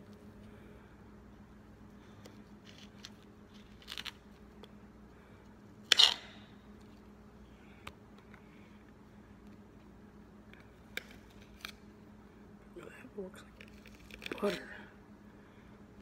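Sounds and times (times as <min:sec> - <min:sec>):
knife cutting banana peel: 0:05.9 - 0:06.4.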